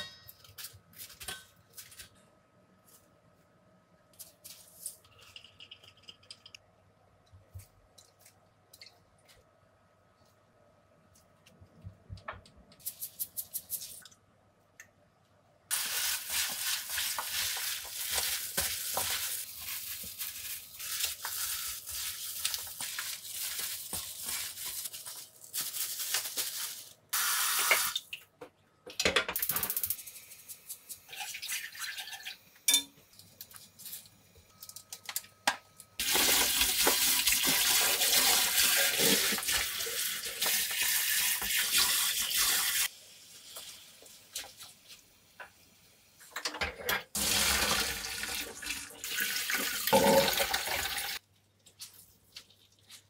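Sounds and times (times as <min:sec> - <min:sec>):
wet crinkly rustle of tossed cabbage: 0:15.7 - 0:27.1.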